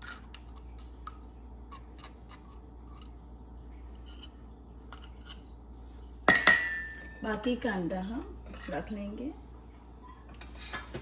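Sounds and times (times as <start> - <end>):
clinks on ringing steel bowl: 6.3 - 7.2.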